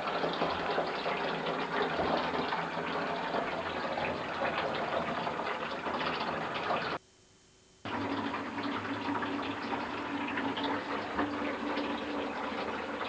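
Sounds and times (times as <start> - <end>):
tap water running into basin: 0.0 - 7.0, 7.9 - 13.0.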